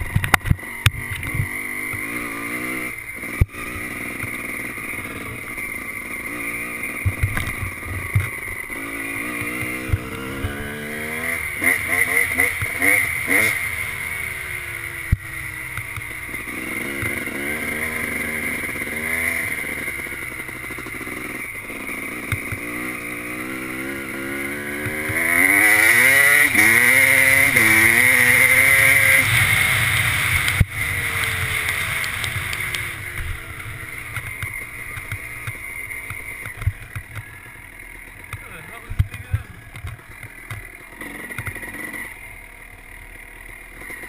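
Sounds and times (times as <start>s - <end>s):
two-stroke engine revving: 0.0s - 44.0s.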